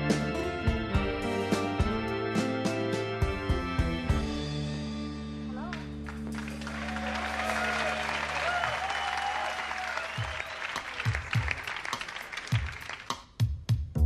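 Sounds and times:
held keyboard chord: 0.0 - 5.5
audience applauding and cheering: 5.7 - 13.5.

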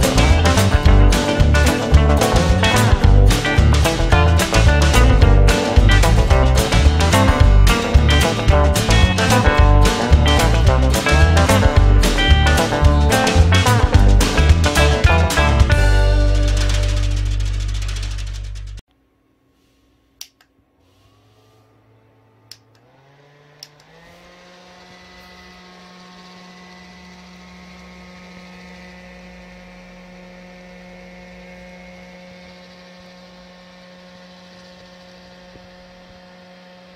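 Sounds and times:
small fan motor whir: 16.5 - 36.9.

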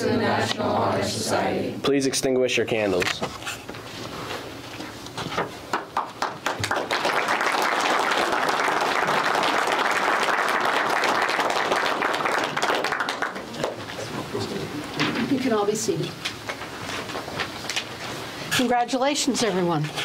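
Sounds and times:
audience applauding: 5.7 - 14.2.

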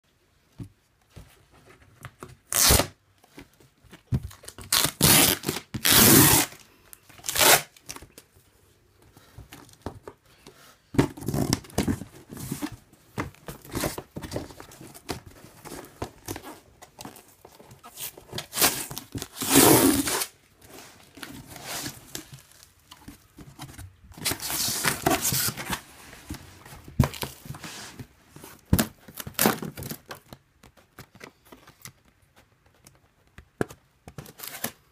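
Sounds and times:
packing tape ripping off cardboard: 2.5 - 3.0, 4.5 - 6.6, 7.2 - 8.0, 17.8 - 20.4
cardboard flaps rustling: 10.9 - 32.8.

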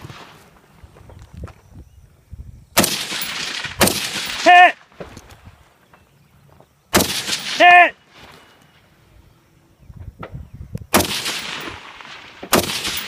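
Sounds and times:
rifle shots with echo: 2.8 - 5.1, 6.9 - 7.9, 10.9 - 13.0
person calling out: 4.4 - 4.8, 7.6 - 8.0.

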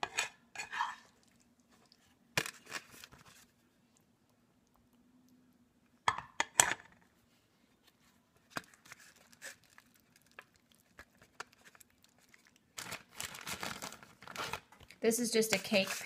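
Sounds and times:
aluminium foil crinkling: 8.6 - 16.0.

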